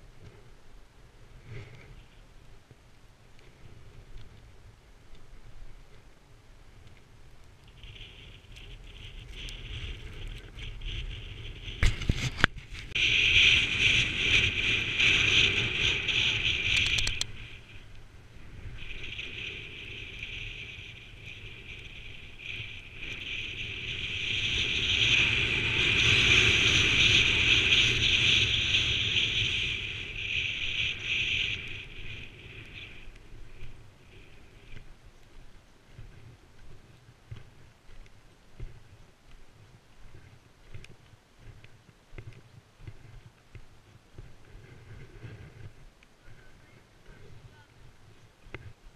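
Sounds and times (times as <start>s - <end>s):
wind rumble on microphone: 0.0s - 48.9s
skis scraping over snow: 7.7s - 45.8s.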